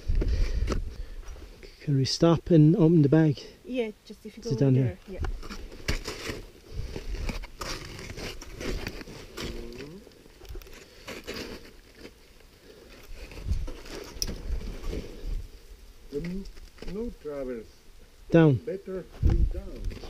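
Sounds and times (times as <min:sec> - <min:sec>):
hands and boots scraping rock: 0:05.2 - 0:09.9.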